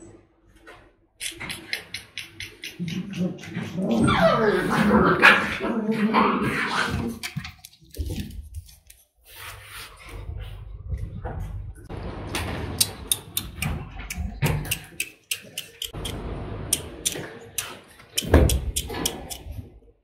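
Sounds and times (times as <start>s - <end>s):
puppy claws clicking on wood: 12.8s - 16.2s, 16.8s - 19.5s.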